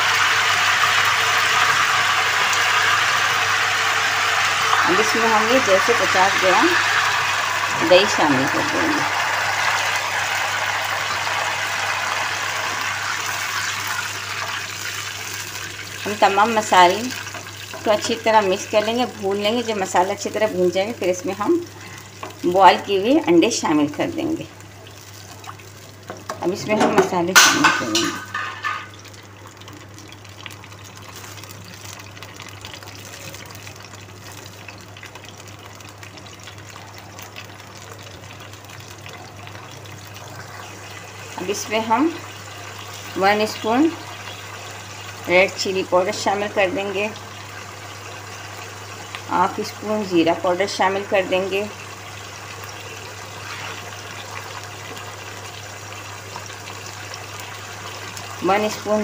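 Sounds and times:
hot oil sizzling: 0.0s - 59.0s.

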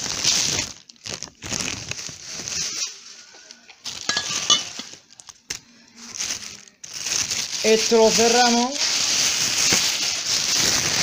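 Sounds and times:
ice cubes rattling and crunching: 0.0s - 2.8s, 3.8s - 5.3s, 6.2s - 11.0s
plastic bags crackling: 0.0s - 11.0s
glass bottles clinking: 3.9s - 4.9s.

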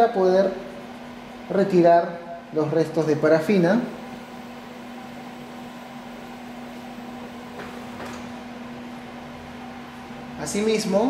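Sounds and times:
fan-like equipment hum: 0.0s - 11.0s.

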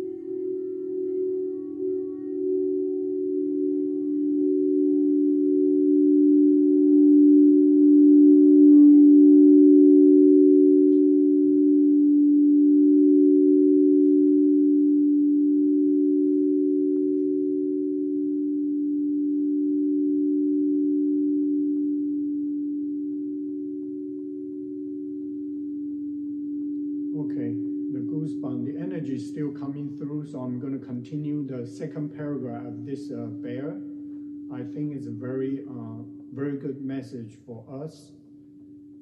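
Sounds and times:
singing bowl ringing: 0.0s - 28.8s, 33.2s - 34.5s.

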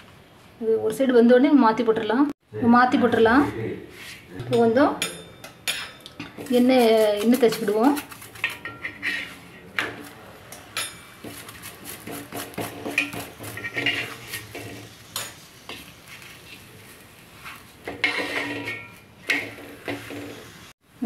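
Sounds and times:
spoon scraping on iron pan: 3.9s - 20.8s
light sizzle: 3.9s - 21.0s.

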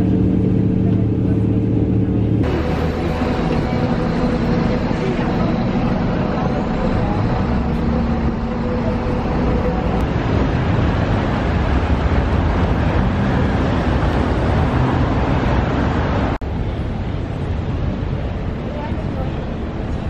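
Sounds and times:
city street traffic: 0.0s - 20.0s
low engine hum: 0.0s - 20.0s.

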